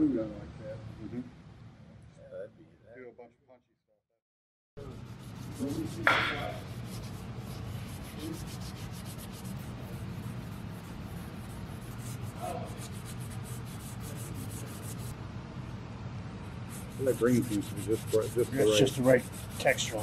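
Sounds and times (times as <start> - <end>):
scratchy pad rubbing wood: 4.8 - 15.1, 16.7 - 20.0
sharp knock: 6.0 - 6.6.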